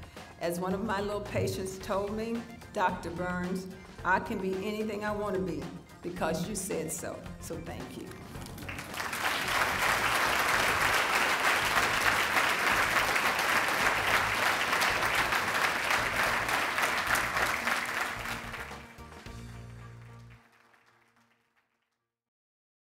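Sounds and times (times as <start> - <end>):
background music: 0.0 - 21.3
audience applauding: 8.4 - 21.7.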